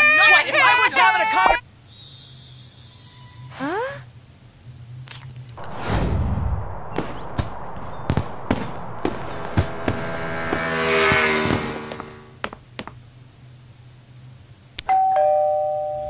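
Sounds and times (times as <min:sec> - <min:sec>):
fireworks booming and crackling: 0:05.6 - 0:13.1.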